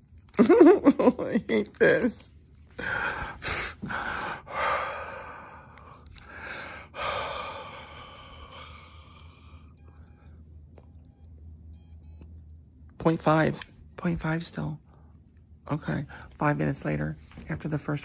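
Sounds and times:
breathalyzer rapid high beeps: 9.8s - 12.8s, 13.7s - 14.5s.

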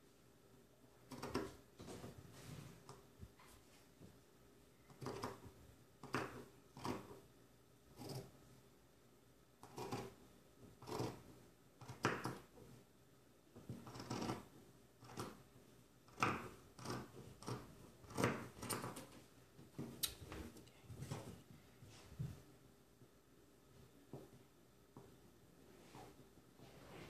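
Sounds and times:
scissors snipping fabric: 4.9s - 5.4s, 6.0s - 7.2s, 8.0s - 8.3s, 9.6s - 10.2s, 10.8s - 11.2s, 11.8s - 12.5s, 13.7s - 15.4s, 16.1s - 19.1s.

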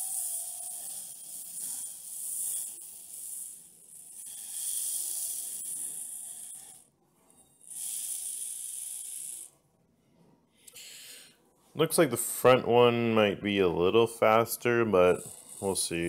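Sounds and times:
toy motor whirring: 0.0s - 9.6s, 10.6s - 11.3s, 15.0s - 16.0s.

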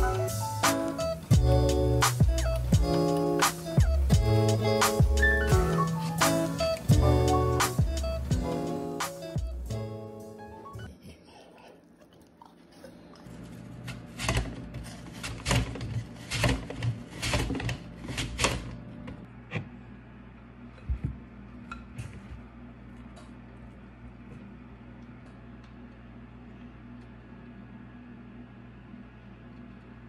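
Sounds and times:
low steady hum: 0.0s - 30.0s
apple sliced on mandoline: 13.8s - 18.7s.

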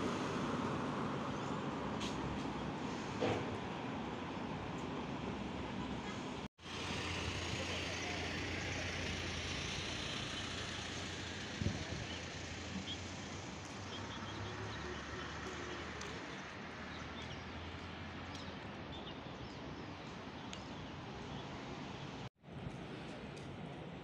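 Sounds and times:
vehicle engine hum: 3.9s - 18.6s.

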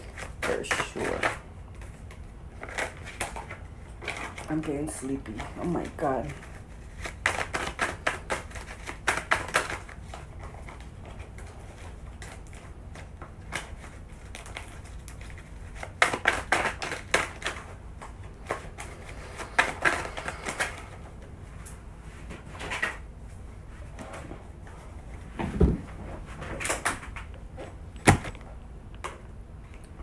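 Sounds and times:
cards being shuffled: 0.0s - 23.0s.

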